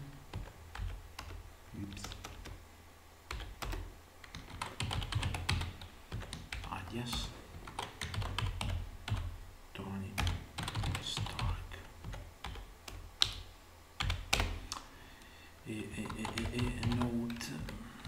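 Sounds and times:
keyboard typing: 0.3s - 2.6s, 3.3s - 9.3s, 10.2s - 13.4s, 14.0s - 14.8s, 15.9s - 18.0s.

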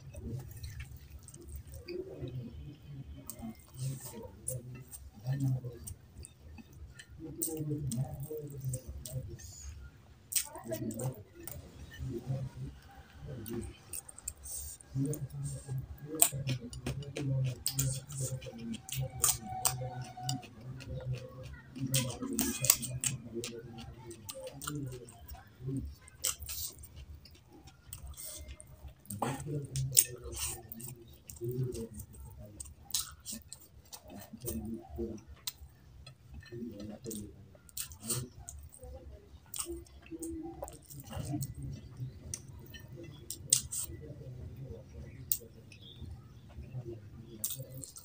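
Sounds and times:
person chewing with mouth clicks: 13.4s - 44.1s, 45.2s - 48.0s.

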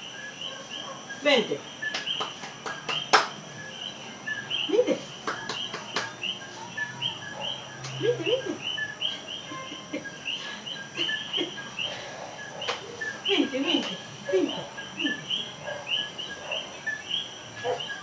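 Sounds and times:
frogs chirping: 0.0s - 18.0s
sharp taps: 1.9s - 3.4s, 5.2s - 6.3s.

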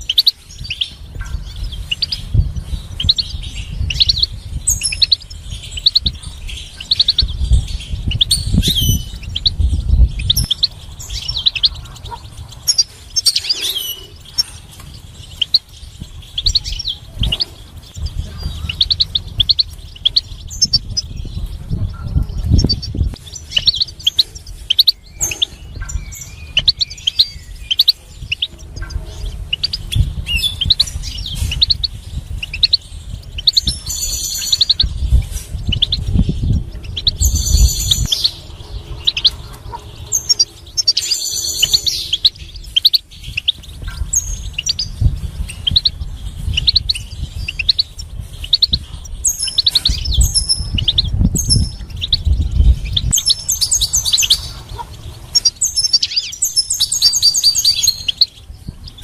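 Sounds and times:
finch singing: 0.0s - 59.0s
low thumps and rumble: 14.3s - 24.5s, 25.2s - 33.9s, 42.6s - 56.0s.

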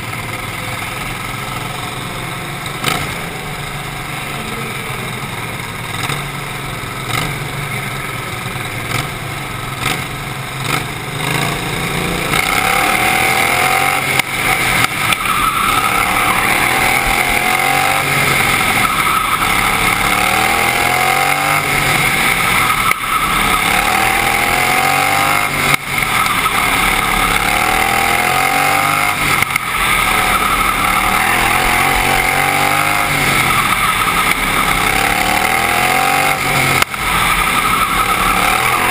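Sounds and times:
racing lawnmower engine revving: 0.0s - 6.4s, 7.0s - 7.6s, 8.8s - 38.9s.

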